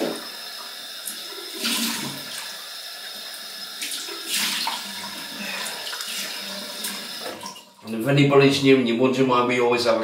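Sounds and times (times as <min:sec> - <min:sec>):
tap running into a sink: 0:00.0 - 0:02.5.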